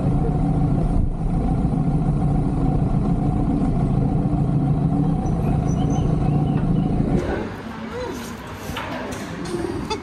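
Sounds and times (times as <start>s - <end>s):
motorcycle engine low rumble: 0.0s - 7.6s.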